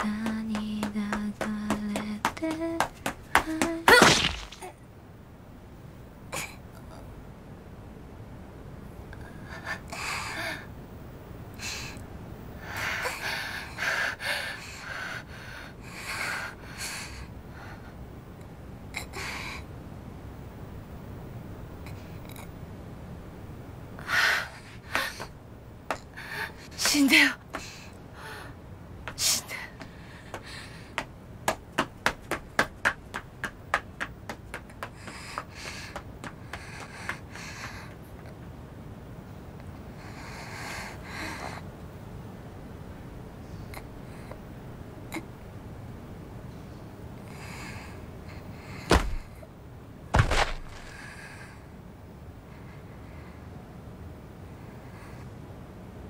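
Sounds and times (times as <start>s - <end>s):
sharp knocks: 48.9s - 49.4s, 50.1s - 51.0s
soft rustling: 50.2s - 51.2s.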